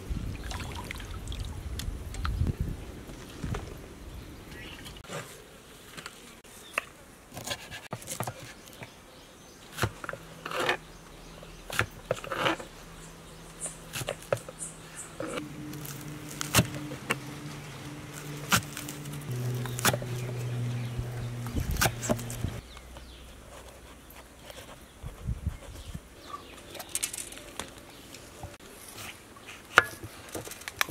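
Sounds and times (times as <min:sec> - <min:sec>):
steady low hum: 0:10.0 - 0:23.5.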